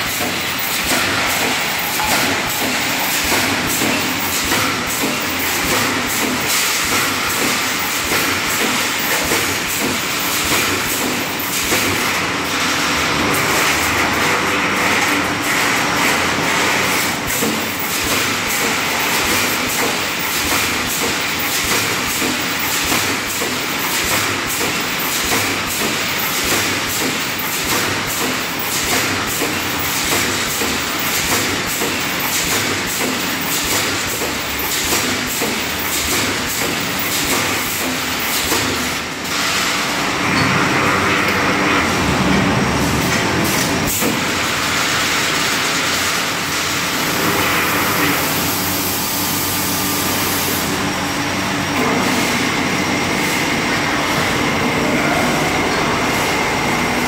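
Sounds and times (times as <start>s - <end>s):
mesh welding machine running: 0.0s - 57.0s.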